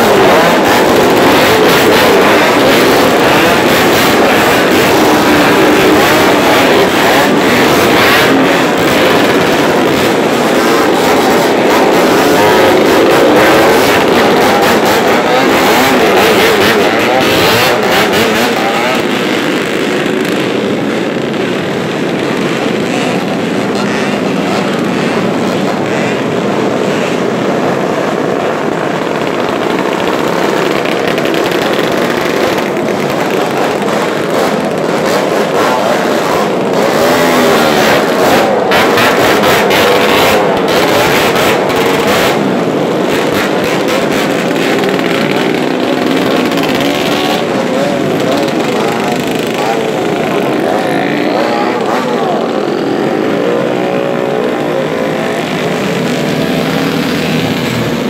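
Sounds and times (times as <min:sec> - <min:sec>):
motorcycles and scooters revving past: 0:00.0 - 0:58.0.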